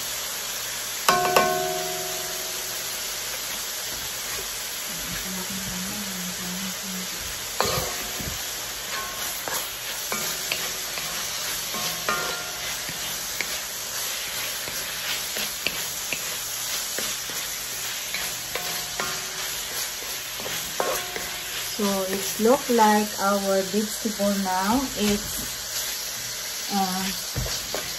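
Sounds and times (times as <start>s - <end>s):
vegetables sizzling in a wok: 0.0s - 27.9s
spatula knocking on pan: 1.1s - 2.8s, 7.6s - 13.6s, 18.5s - 19.8s, 27.3s - 27.9s
wooden spatula scraping pan: 7.6s - 22.8s.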